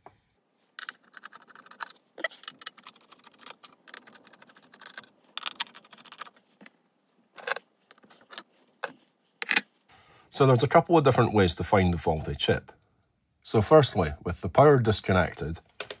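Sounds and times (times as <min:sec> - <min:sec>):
plastic clicking and scraping: 0:00.8 - 0:06.8.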